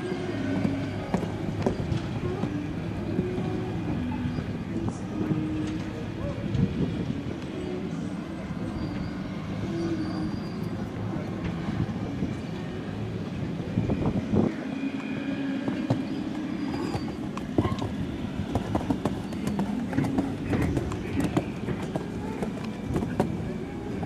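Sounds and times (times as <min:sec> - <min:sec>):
hoofbeats on sand: 0:15.0 - 0:23.8.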